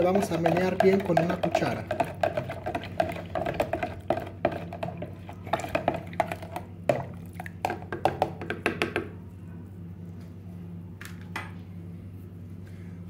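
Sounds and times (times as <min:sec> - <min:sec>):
metal spoon stirring in pitcher: 0:00.0 - 0:08.2.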